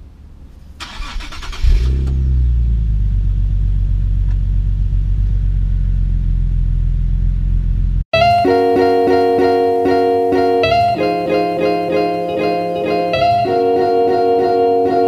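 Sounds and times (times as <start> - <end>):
car engine starting and idling: 0.7 - 8.0.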